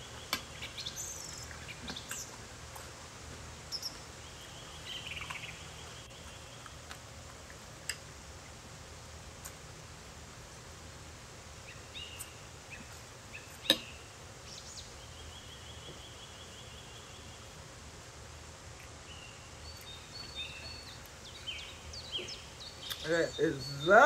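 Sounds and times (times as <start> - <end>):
quiet eating sounds: 0.0 - 14.2, 17.2 - 23.9
low steady hum: 0.0 - 24.0
faint high chirps and trill: 18.8 - 24.0.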